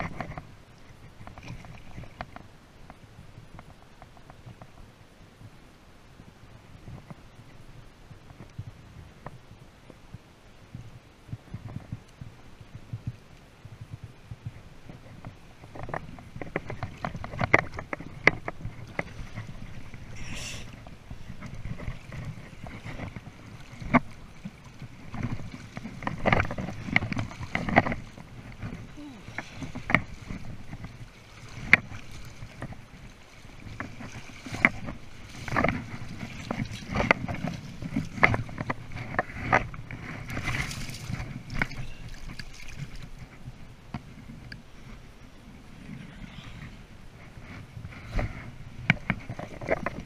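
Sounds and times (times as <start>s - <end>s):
sharp splashes and knocks: 15.7s - 43.3s
river water splashing around net: 16.4s - 44.0s.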